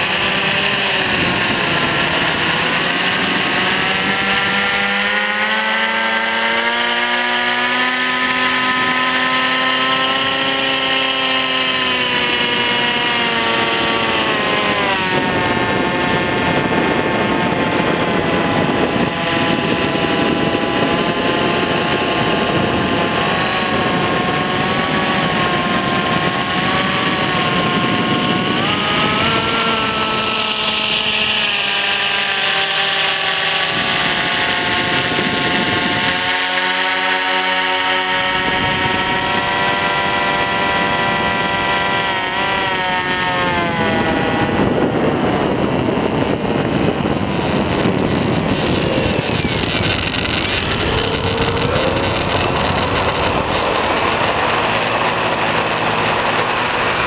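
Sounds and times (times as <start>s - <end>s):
propeller motors whirring: 0.0s - 57.0s
rushing noise: 44.0s - 57.0s.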